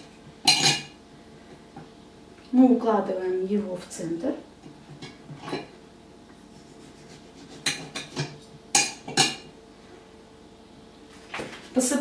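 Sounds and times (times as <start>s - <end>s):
plates and knife clinking: 0.5s - 0.9s, 7.7s - 9.5s.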